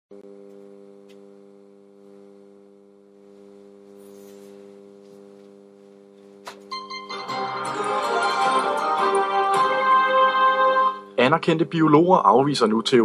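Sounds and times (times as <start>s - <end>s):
low electronic hum: 0.1s - 7.8s.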